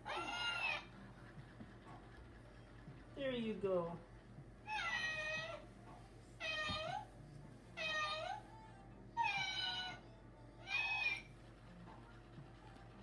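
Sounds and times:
toy cat meowing: 0.0 - 0.9, 9.2 - 10.0, 10.6 - 11.3.

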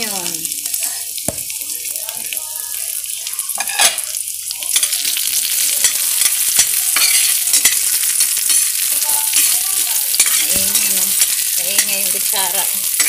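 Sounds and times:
onion and garlic sizzling in oil: 0.0 - 13.0
metal spoon scraping a pan: 3.6 - 4.1, 4.7 - 13.0.

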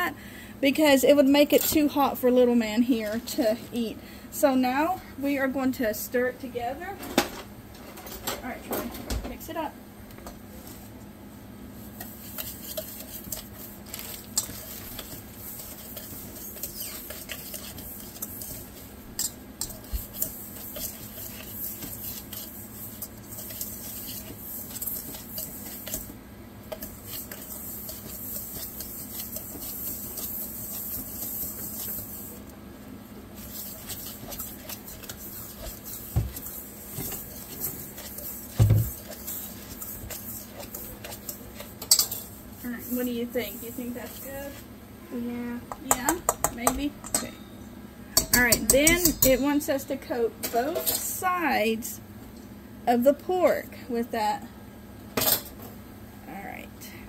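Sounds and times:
spoon scraping metal bowl: 12.0 - 26.1, 26.7 - 32.2, 33.4 - 44.6, 48.2 - 49.7.

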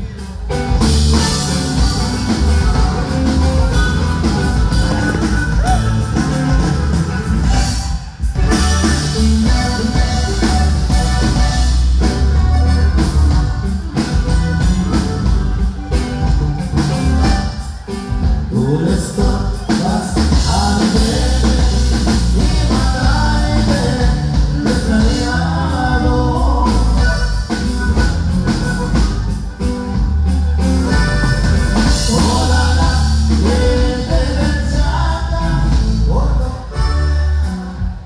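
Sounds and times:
man singing: 0.0 - 6.6, 8.5 - 13.4, 17.5 - 27.8, 30.8 - 38.0
norteno band playing: 0.0 - 38.0.

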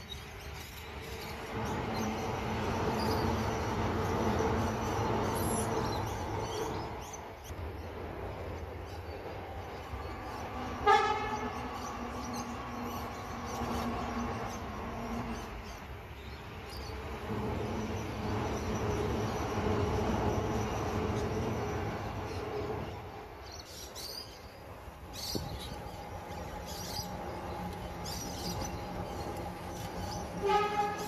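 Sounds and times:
train wheels rumbling on rail: 0.0 - 31.0
train horn toot: 10.6 - 12.9, 30.0 - 31.0.

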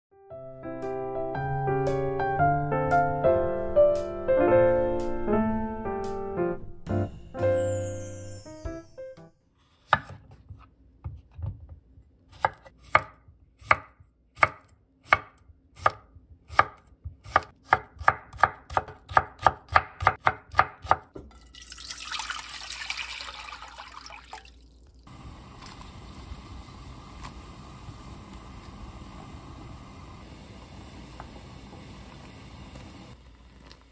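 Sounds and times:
knife slicing on wooden board: 9.6 - 10.7
pot of water boiling: 21.2 - 33.9
hiss: 25.1 - 33.6.

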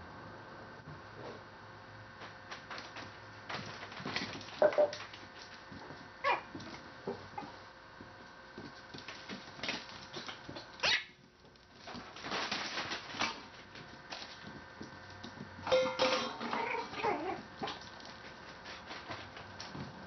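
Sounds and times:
dog yelping: 4.6 - 4.9, 6.2 - 6.5, 16.5 - 17.4
dog barking and whining: 6.2 - 7.6, 16.4 - 17.5.

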